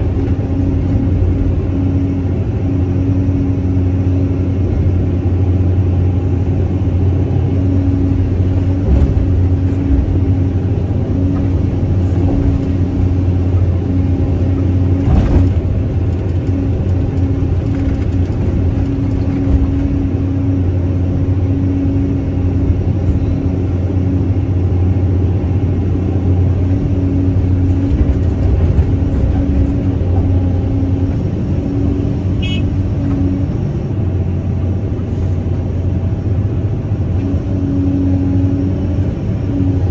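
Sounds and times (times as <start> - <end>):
excavator diesel engine running: 0.0 - 39.9.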